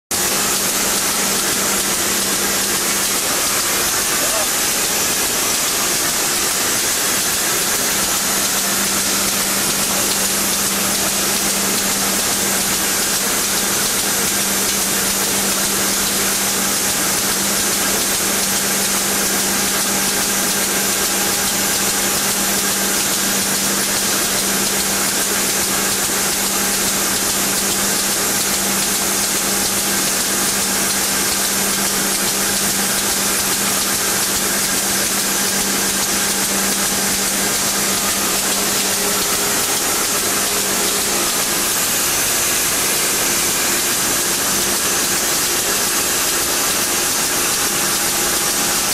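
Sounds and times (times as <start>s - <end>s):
machinery high hiss: 0.2s - 13.5s.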